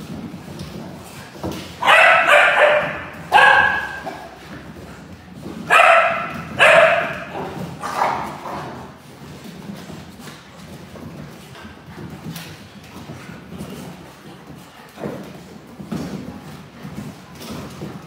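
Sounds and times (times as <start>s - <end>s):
dogs barking: 1.8s - 4.4s, 5.7s - 8.8s.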